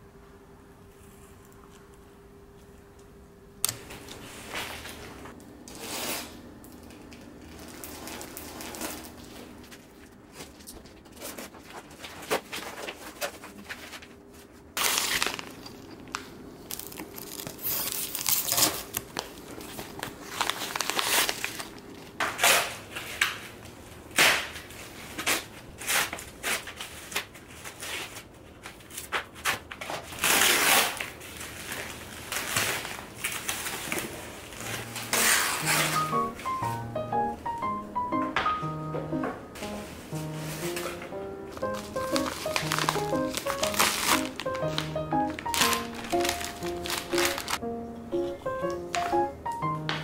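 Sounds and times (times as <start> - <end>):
plastic crinkling and rustling: 3.9 - 36.2, 39.6 - 47.6
scissors cutting packing foam: 14.8 - 15.7, 16.7 - 19.4, 20.0 - 23.3, 25.2 - 36.2, 41.6 - 47.6.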